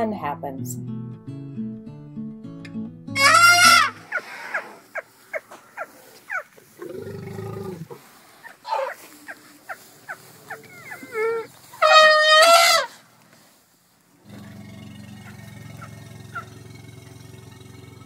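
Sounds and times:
high falling squeaks: 3.2 - 4.0
elephant trumpeting: 3.2 - 13.1, 14.2 - 18.0
low rumbling call: 14.2 - 18.0.

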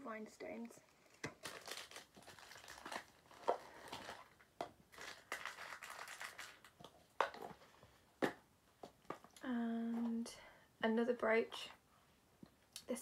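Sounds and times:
packaging crinkling and rustling: 0.9 - 7.6.

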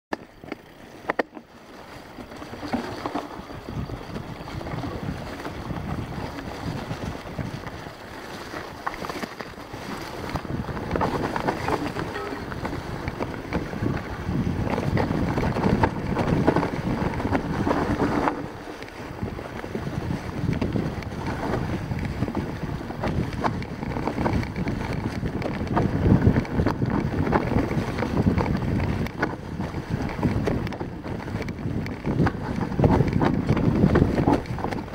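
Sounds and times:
bike knocks and rattles: 0.1 - 7.8, 8.4 - 34.9
bike tyre noise: 0.1 - 34.9
wind rushing over microphone: 1.7 - 34.9.

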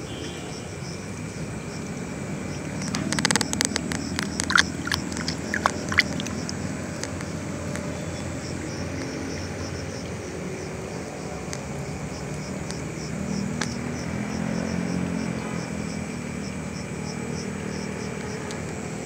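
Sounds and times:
insects chirping: 0.0 - 19.0
sharp clicks and rustles: 2.8 - 7.8.

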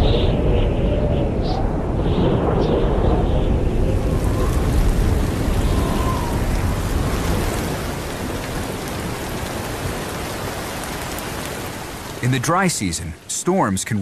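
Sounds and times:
low thunder rumble: 0.0 - 10.7
steady rain falling: 2.2 - 14.0.

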